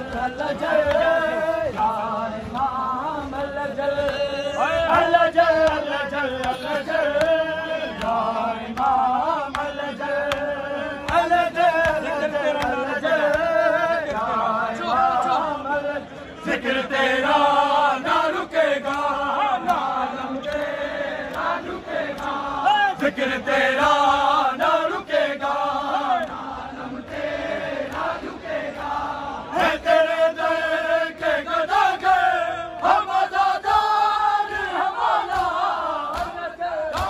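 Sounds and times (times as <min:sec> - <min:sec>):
men chanting a lament: 0:00.0 - 0:37.0.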